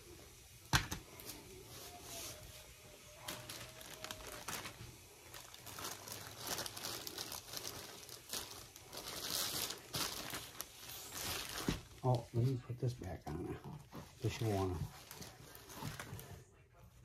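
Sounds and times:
plastic bag crinkling: 0:03.1 - 0:16.6.

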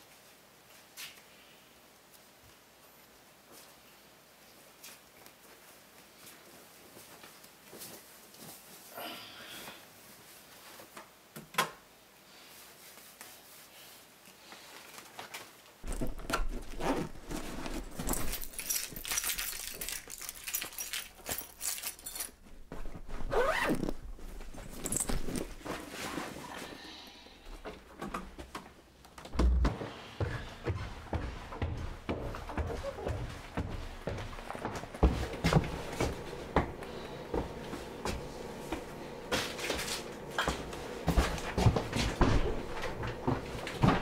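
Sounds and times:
clothing rustling: 0:12.4 - 0:26.7
zipper: 0:15.9 - 0:19.0, 0:23.2 - 0:26.5
keys jangling: 0:17.3 - 0:22.7, 0:24.5 - 0:25.6
footsteps on stairs: 0:27.6 - 0:44.0.

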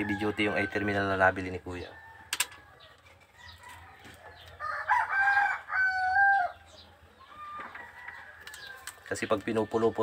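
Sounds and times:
rooster crowing: 0:01.8 - 0:06.6, 0:07.2 - 0:08.9.

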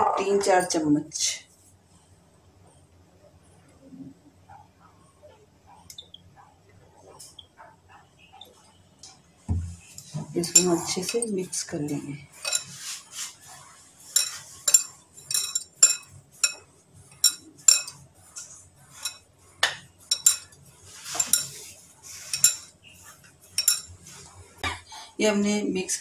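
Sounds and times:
hand rubbing dough rustles: 0:09.6 - 0:15.2, 0:20.6 - 0:24.6
bangles clinking: 0:14.0 - 0:19.2, 0:20.0 - 0:22.7, 0:23.5 - 0:24.0.

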